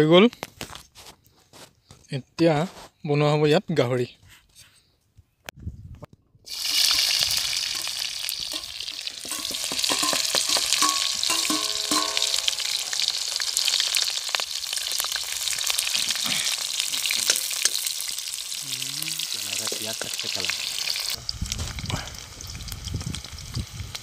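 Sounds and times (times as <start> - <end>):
steel spoon scraping wok: 6.5 - 14.4
onion sizzling in hot oil: 6.5 - 24.0.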